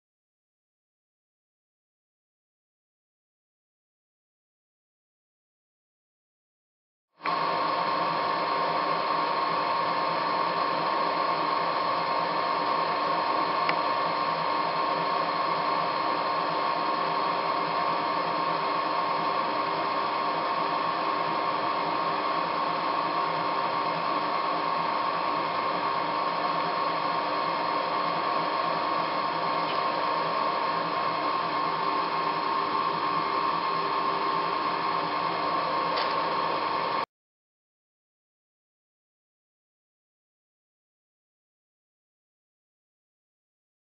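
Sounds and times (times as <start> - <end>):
lathe humming with high whine: 7.2 - 37.1.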